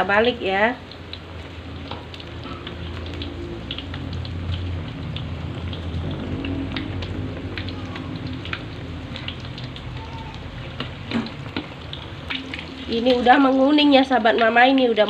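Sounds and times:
fritters sizzling in hot oil: 0.0 - 15.0.

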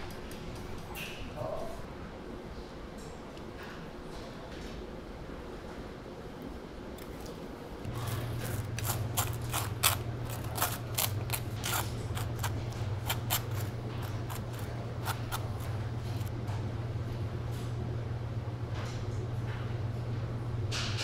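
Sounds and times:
low steady hum: 5.0 - 21.0
knife scraping toast: 7.9 - 16.3.

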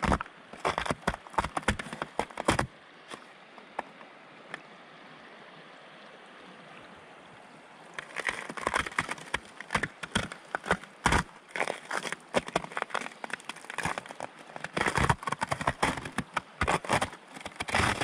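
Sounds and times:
boots crunching through snow: 0.0 - 2.7, 8.0 - 18.0
river water rushing: 2.6 - 18.0.

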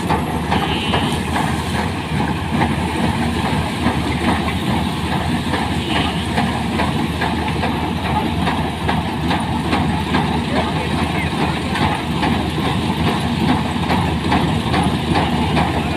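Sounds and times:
combine harvester engine drone: 0.0 - 15.9
rattles and clicks of machinery: 0.0 - 15.9.

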